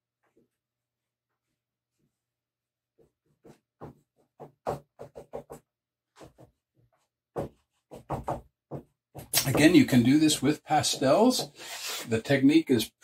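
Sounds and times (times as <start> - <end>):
chalk scratching on paper: 10.7 - 12.2.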